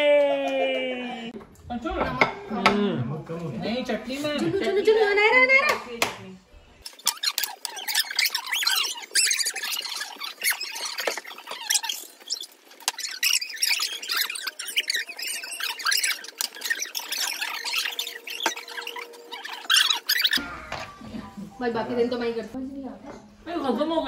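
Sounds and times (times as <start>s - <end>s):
sped-up squeaky chatter: 6.8s - 20.4s.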